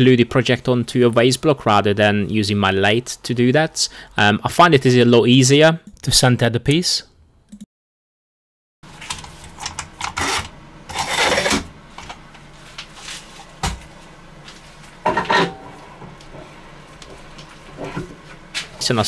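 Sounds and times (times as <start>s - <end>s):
rubbing and scraping handling noises: 8.9s - 18.8s.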